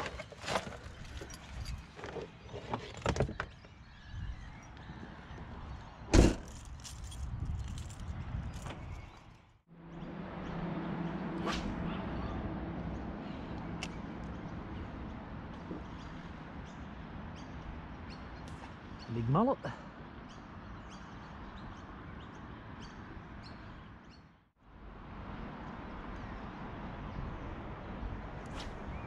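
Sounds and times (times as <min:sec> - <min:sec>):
tailgate slamming shut: 0:06.1 - 0:06.6.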